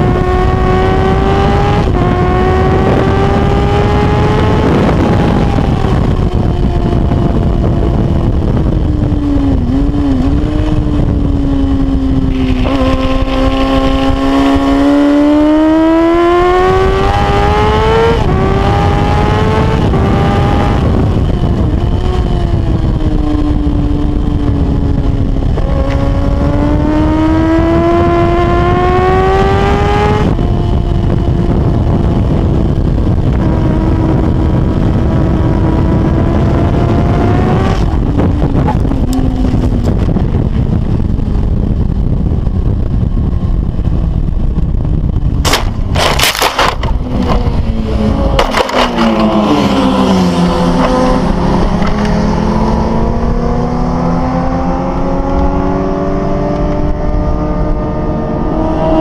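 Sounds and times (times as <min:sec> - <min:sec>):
racing motorcycle engine revving: 0:00.0 - 0:59.0
wind noise on microphone: 0:00.0 - 0:59.0
motorcycle crashing: 0:45.4 - 0:49.8.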